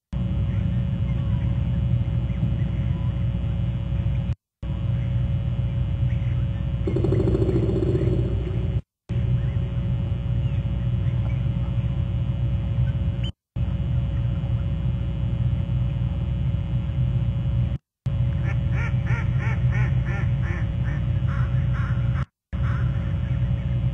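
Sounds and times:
low rumble with hum: 0.1s - 23.9s.

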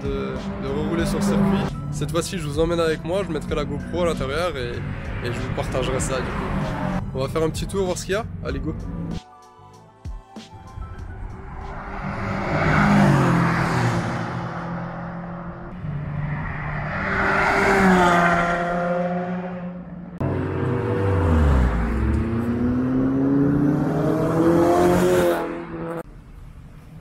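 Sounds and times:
engine revving up: 0.0s - 1.8s, 11.2s - 26.0s
race cars passing at full throttle: 0.0s - 2.0s, 3.4s - 7.0s, 10.8s - 26.0s.

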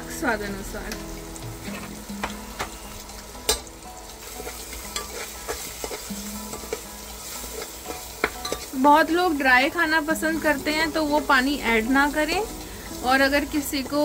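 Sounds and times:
food sizzling: 0.0s - 14.0s
utensil scraping a metal pot: 1.5s - 8.8s.

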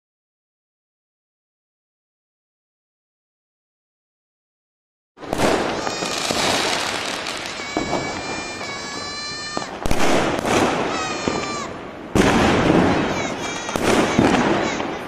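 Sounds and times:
firework bangs: 5.2s - 15.0s
firework whistles: 5.2s - 15.0s
fireworks crackling: 5.2s - 15.0s.

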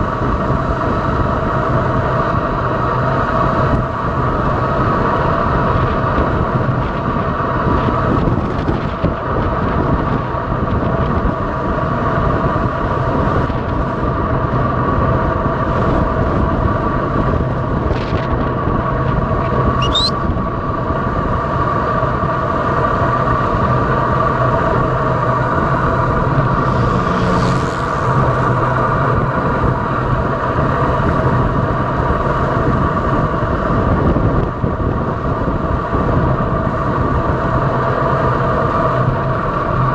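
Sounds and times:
road and wind noise: 0.0s - 39.9s
steady hum: 18.5s - 35.6s
brief rising high squeak: 19.8s - 20.2s.

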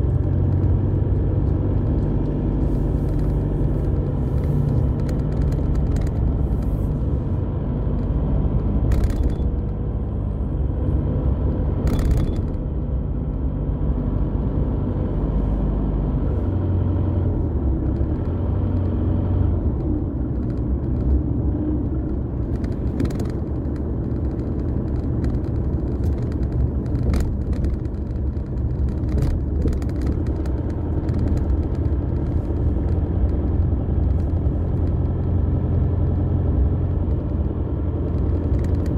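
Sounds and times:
car engine and tyre rumble: 0.0s - 38.9s.

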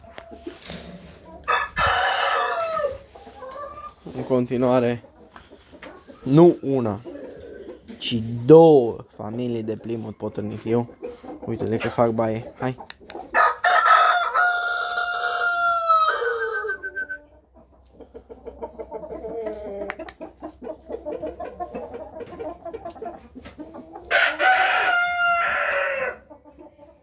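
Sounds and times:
hens clucking: 0.0s - 27.0s
rooster crowing: 1.5s - 3.0s, 13.4s - 17.1s, 24.1s - 26.2s.

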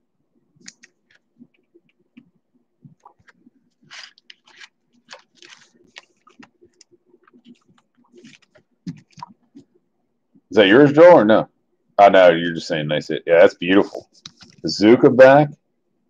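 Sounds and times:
plastic crinkling and scraping: 2.9s - 9.7s.

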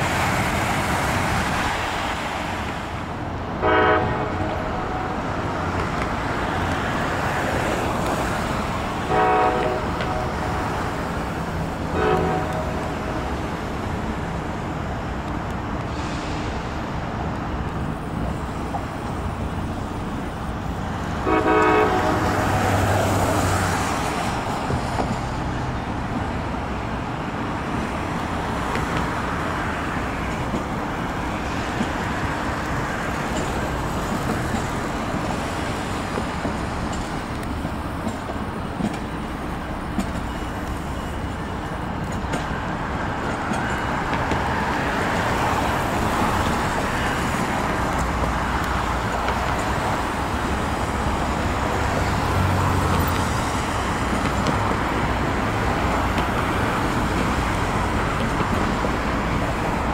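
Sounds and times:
rumble of trains and traffic: 0.0s - 59.9s
train horn blasts: 3.6s - 5.3s, 9.0s - 10.9s, 11.9s - 13.5s, 21.2s - 22.8s.

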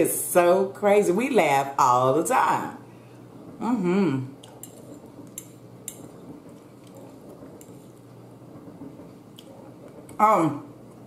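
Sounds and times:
fork clinking and scraping on plate: 4.4s - 8.1s.

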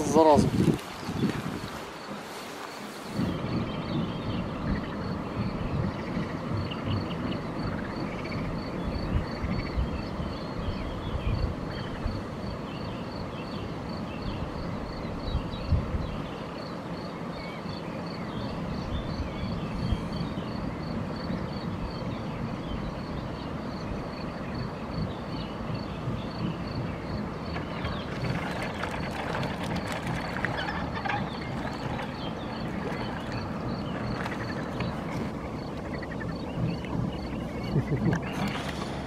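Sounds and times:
wind rumble on microphone: 0.0s - 39.0s
microphone bumps: 0.4s - 1.9s, 31.0s - 39.0s.

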